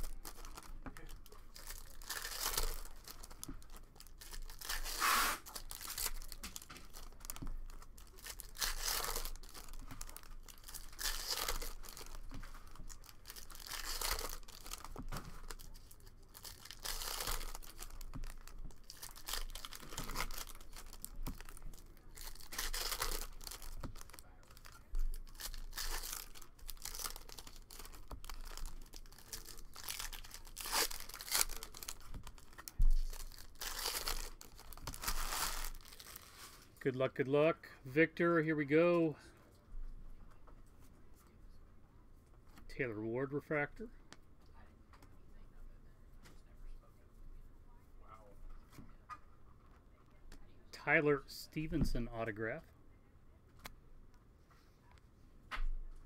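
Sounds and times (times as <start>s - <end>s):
foil wrappers tearing and crinkling: 0.0s - 36.6s.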